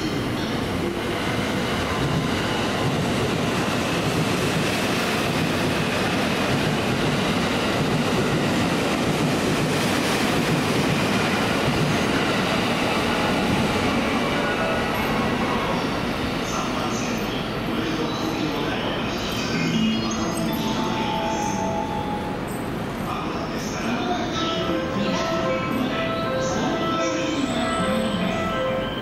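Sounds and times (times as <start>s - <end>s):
electric train running on rails: 0.0s - 29.0s.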